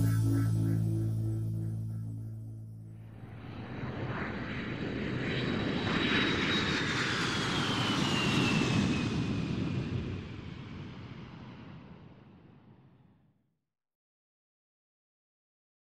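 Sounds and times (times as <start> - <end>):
aircraft fly-past: 2.9 - 13.0.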